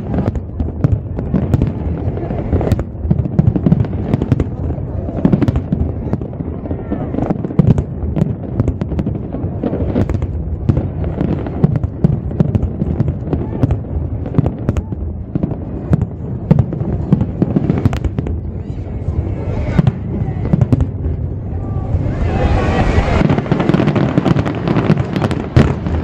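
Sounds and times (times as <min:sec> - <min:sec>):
firework bangs: 0:00.0 - 0:26.0
low rumble: 0:07.9 - 0:25.2.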